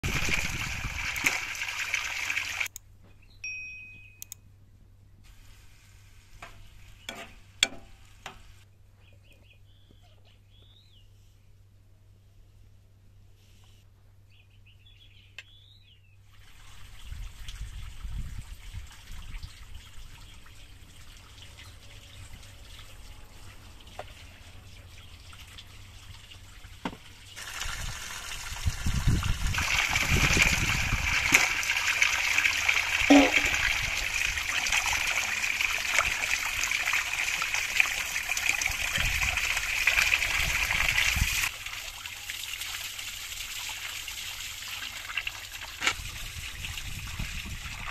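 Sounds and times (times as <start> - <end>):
water splashing into channel: 0.0 - 2.7, 27.4 - 46.2
hands rinsing vegetables: 27.4 - 36.5.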